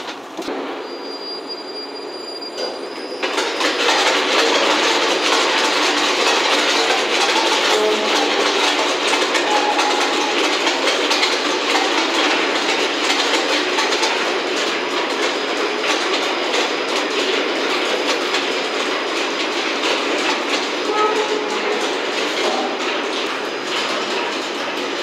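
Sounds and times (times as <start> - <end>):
cable car rattling: 2.6 - 25.0.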